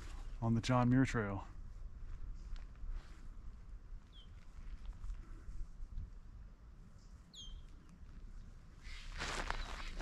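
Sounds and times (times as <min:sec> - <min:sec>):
footsteps on trail: 0:09.0 - 0:10.0.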